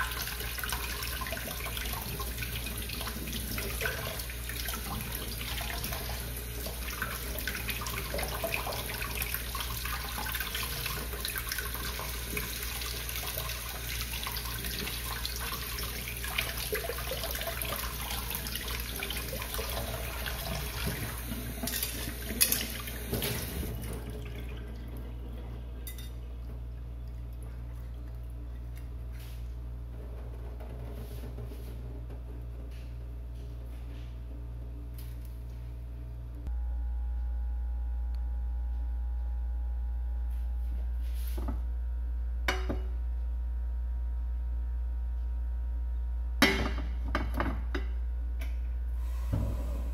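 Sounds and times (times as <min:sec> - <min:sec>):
tap water running into sink: 0:00.0 - 0:25.0.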